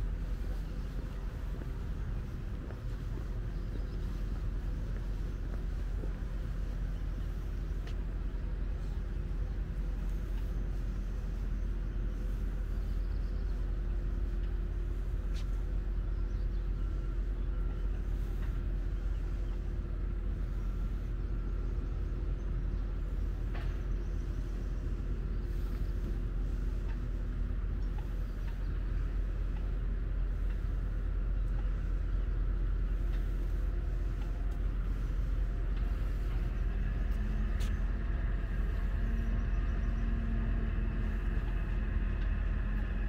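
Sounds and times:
low mechanical hum: 0.0 - 43.0
faint ticks: 26.8 - 27.2, 27.8 - 28.8.

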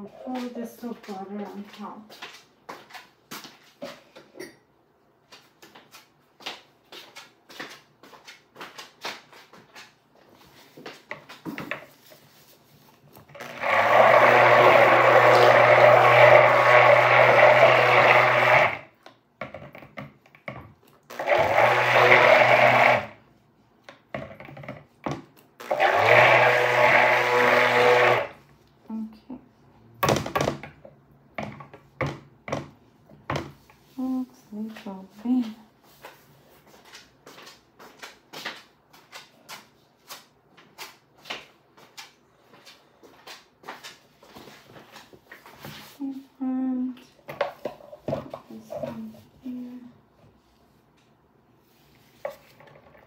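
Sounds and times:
stick blender running: 13.3 - 19.0, 21.0 - 23.2, 25.6 - 28.4.

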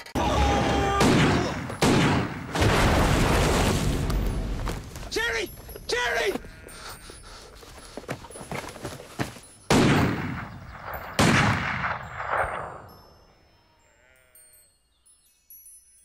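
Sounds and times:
loud gunshots: 0.4 - 3.8, 9.7 - 10.6, 11.2 - 12.7.

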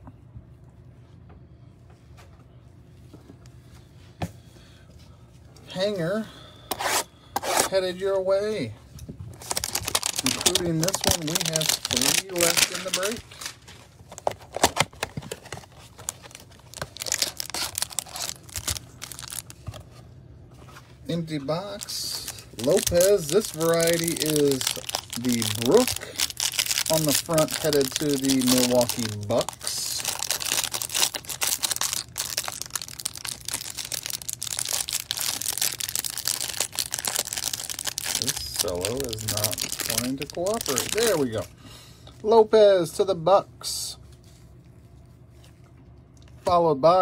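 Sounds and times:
plastic wrapper crinkling: 9.3 - 19.8, 21.6 - 41.5.

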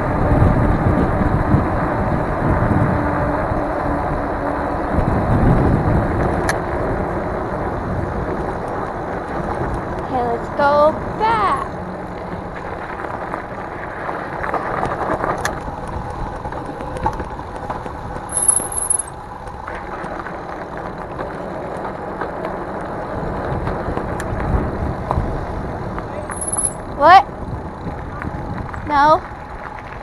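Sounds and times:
bike tires rolling over gravel: 0.1 - 18.3, 19.1 - 26.6, 27.4 - 30.0
bike rattling: 12.0 - 24.2, 26.1 - 30.0.

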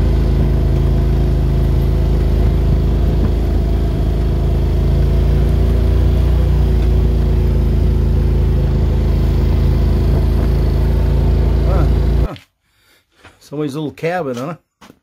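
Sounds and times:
vehicle engine running: 0.0 - 12.4.

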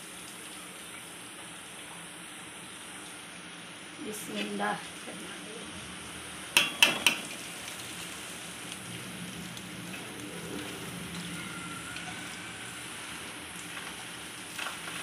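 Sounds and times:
water dripping and trickling: 0.0 - 2.1, 7.4 - 12.6
kitchenware clinking: 6.6 - 7.3.

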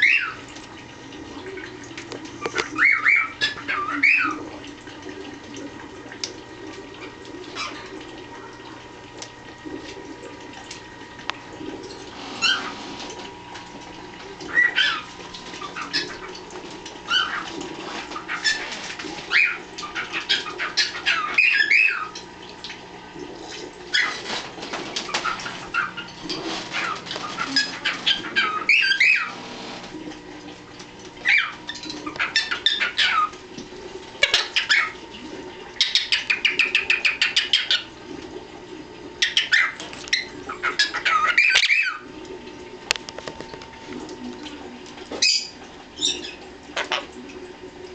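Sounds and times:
parrots chirping and squawking: 0.0 - 0.4, 2.4 - 4.6, 7.0 - 8.0, 12.2 - 13.2, 14.4 - 16.4, 17.0 - 22.3, 23.4 - 29.9, 31.2 - 33.4, 34.2 - 35.0, 35.7 - 37.9, 39.2 - 42.1, 45.1 - 47.1.

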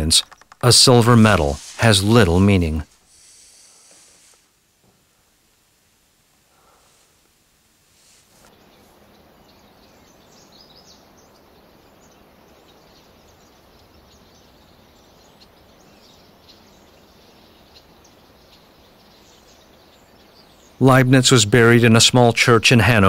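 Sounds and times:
faint steady background hum: 0.0 - 23.0
bird chirps: 8.5 - 20.9.

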